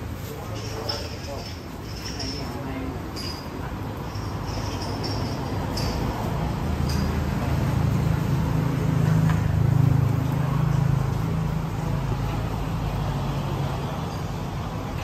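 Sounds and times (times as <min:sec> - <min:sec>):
road traffic rumble: 0:00.0 - 0:15.0
vehicle passing: 0:03.8 - 0:15.0.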